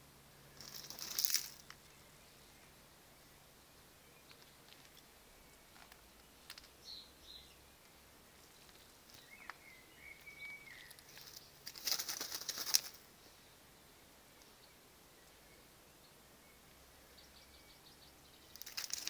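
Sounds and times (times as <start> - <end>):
rabbit scrabbling in gravel: 0.5 - 2.0, 4.2 - 6.8, 8.4 - 9.6, 10.8 - 13.1, 18.5 - 19.0
paws clicking on stones: 0.6 - 1.8, 18.6 - 19.0.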